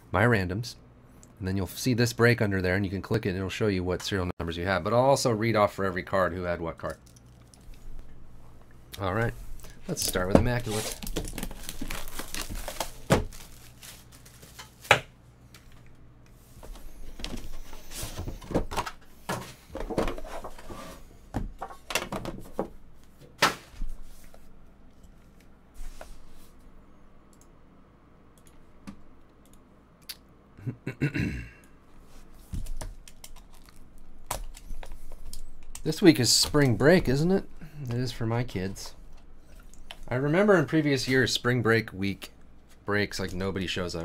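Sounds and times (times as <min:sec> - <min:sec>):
cardboard sliding and rustling: 0:10.6 - 0:12.9.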